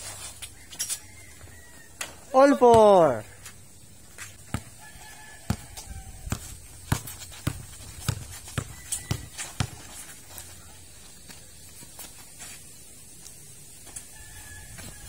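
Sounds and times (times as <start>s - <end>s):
basketball bouncing on concrete: 1.4s - 10.4s.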